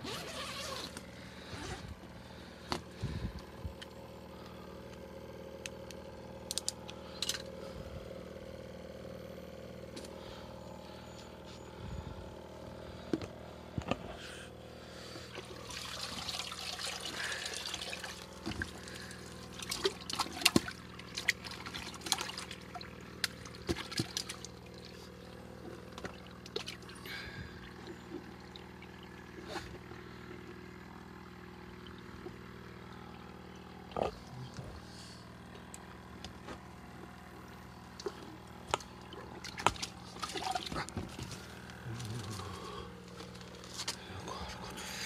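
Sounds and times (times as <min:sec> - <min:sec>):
steady low hum: 0:00.0 - 0:45.0
water splashing in a bucket: 0:15.3 - 0:29.9, 0:37.9 - 0:41.3.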